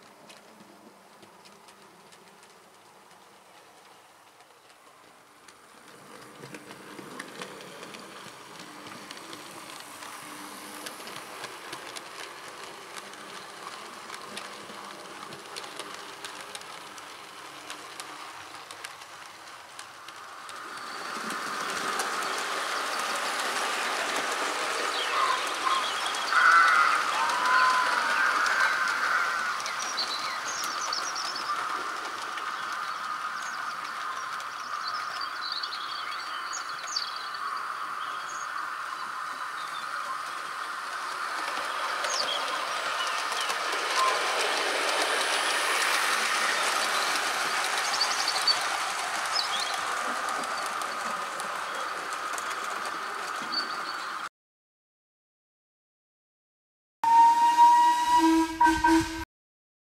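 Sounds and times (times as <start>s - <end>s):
model train wheels clicking: 0.0s - 54.2s
model train motor hum: 5.4s - 35.7s, 38.9s - 53.5s
brief high tones: 57.0s - 59.2s.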